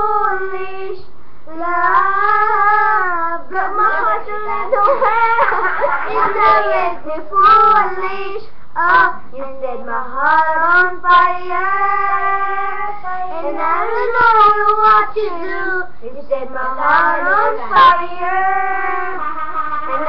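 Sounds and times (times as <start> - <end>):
high-pitched voice singing: 6.1 - 20.0.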